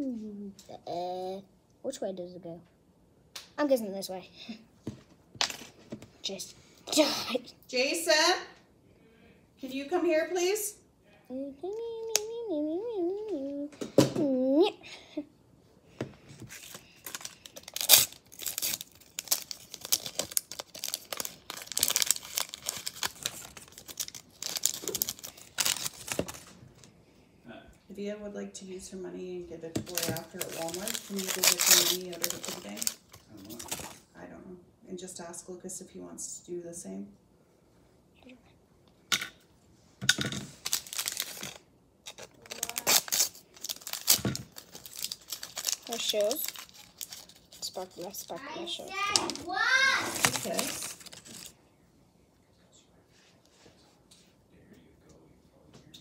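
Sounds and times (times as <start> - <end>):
plastic wrapper crinkling and tearing: 16.5 - 26.9, 29.8 - 34.1, 40.5 - 51.6.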